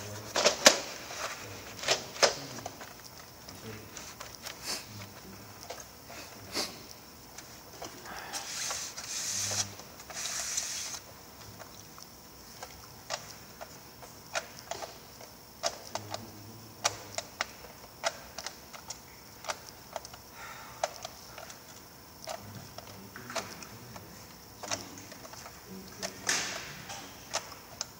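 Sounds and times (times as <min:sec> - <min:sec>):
rustling: 0:00.0 - 0:06.0
clicks and taps of plastic trays: 0:20.8 - 0:27.9.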